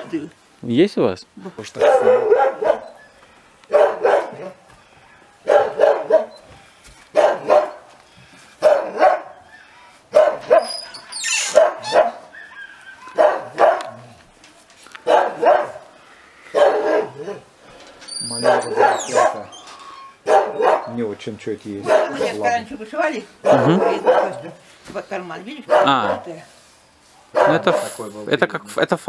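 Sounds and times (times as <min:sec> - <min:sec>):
dog barking: 0:01.8 - 0:03.0, 0:03.7 - 0:04.6, 0:05.4 - 0:06.4, 0:07.1 - 0:07.9, 0:08.6 - 0:09.5, 0:10.1 - 0:10.8, 0:11.4 - 0:14.2, 0:15.0 - 0:15.9, 0:16.5 - 0:17.5, 0:18.2 - 0:19.5, 0:20.2 - 0:21.0, 0:21.8 - 0:22.7, 0:23.4 - 0:24.6, 0:25.6 - 0:26.5, 0:27.2 - 0:28.0.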